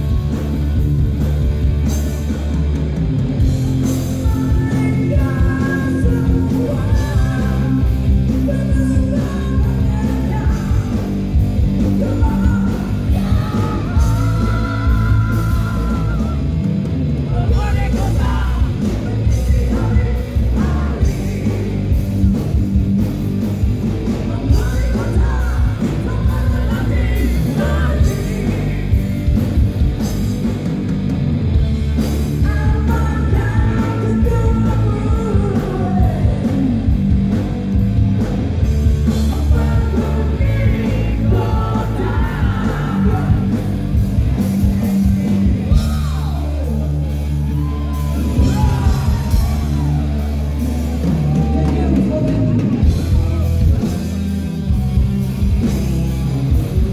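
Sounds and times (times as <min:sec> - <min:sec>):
live heavy metal band: 0:00.0 - 0:56.9
vocalist singing and shouting: 0:03.8 - 0:22.4, 0:24.0 - 0:29.5, 0:32.3 - 0:37.0, 0:39.0 - 0:54.2.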